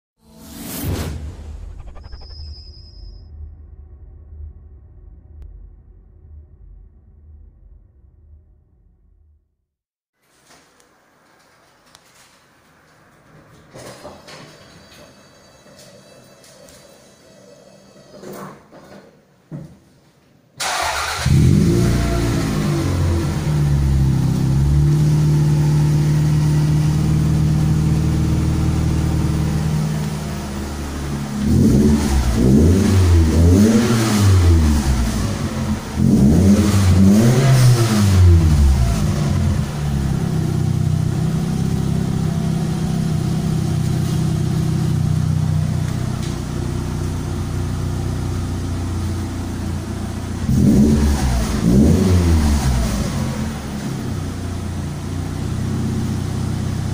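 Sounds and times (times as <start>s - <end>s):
car exhaust idling and revving: 21.3s - 56.9s.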